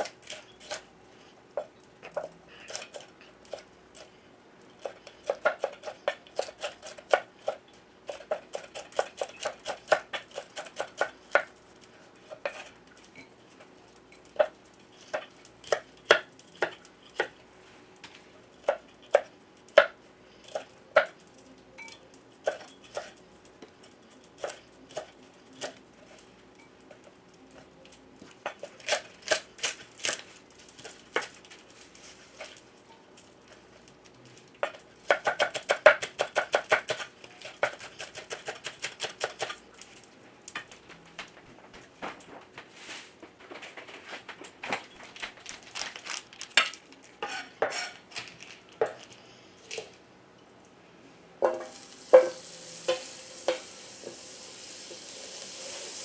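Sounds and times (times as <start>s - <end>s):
knife chopping on cutting board: 34.6s - 39.5s.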